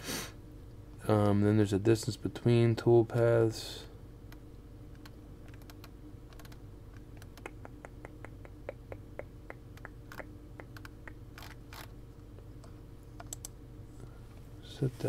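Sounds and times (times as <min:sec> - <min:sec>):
faint steady hum: 0:00.0 - 0:15.0
mouse scroll wheel ticks: 0:05.0 - 0:06.6, 0:10.7 - 0:11.9
mouse and keyboard clicking: 0:05.0 - 0:08.4, 0:09.8 - 0:11.9, 0:13.2 - 0:13.5.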